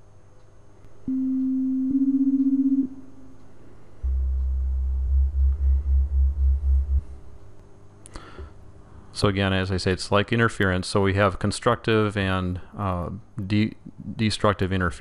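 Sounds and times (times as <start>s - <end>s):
beating sine tones: 1.0s - 7.6s.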